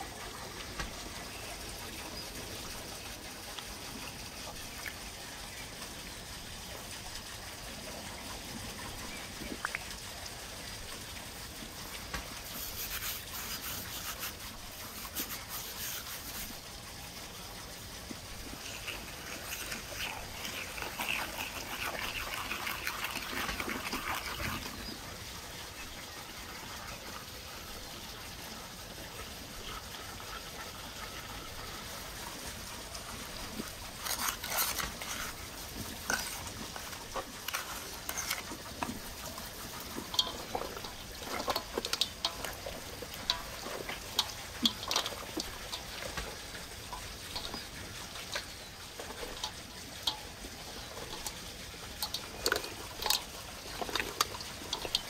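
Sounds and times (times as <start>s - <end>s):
wooden spoon scraping a bowl: 12.5s - 16.6s, 34.0s - 35.4s, 36.0s - 38.5s.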